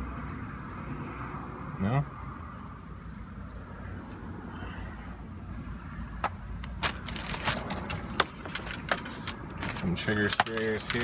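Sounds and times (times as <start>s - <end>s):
plastic items clicking in a bucket: 6.8s - 11.0s.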